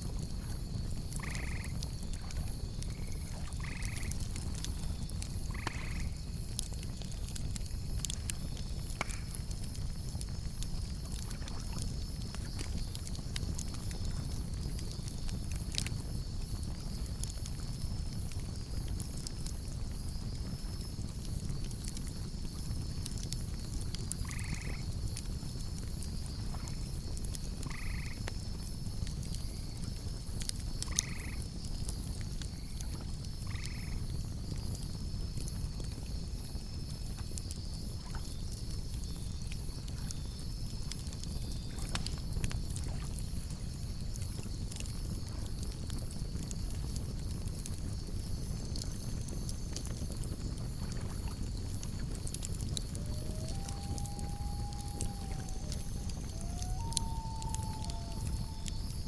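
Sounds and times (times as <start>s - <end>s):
campfire crackling: 0.0s - 59.0s
insects chirping: 0.0s - 59.0s
short calls: 53.0s - 59.0s.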